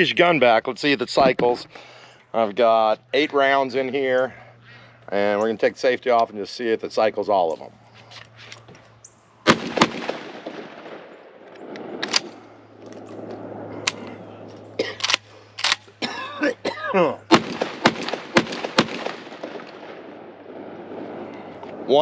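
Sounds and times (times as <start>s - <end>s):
shotgun shots: 9.4s - 12.6s, 17.3s - 21.9s.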